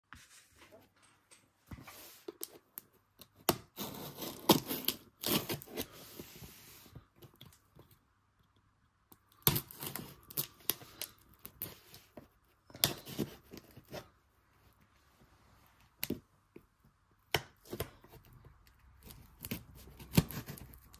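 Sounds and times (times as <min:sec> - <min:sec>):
knife slitting packing tape: 0:03.6 - 0:05.9, 0:19.0 - 0:20.9.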